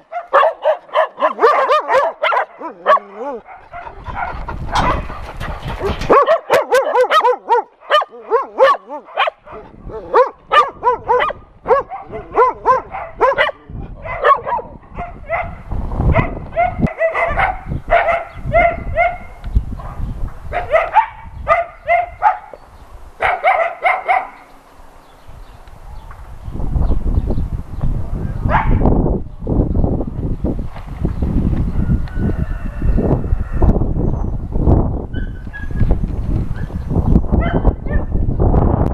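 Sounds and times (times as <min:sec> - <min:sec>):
dogs barking and yipping: 0:00.0 - 0:22.6, 0:23.2 - 0:24.5, 0:28.4 - 0:28.9, 0:35.0 - 0:38.2
dogs whining: 0:01.2 - 0:05.2.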